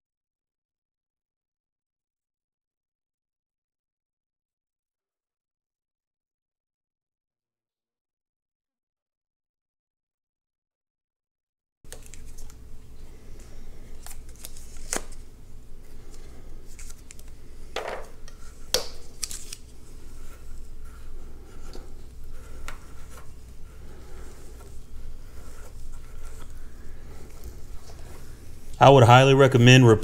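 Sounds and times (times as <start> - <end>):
thread tape crinkling: 11.9 - 12.7, 13.4 - 15.3, 15.9 - 28.7.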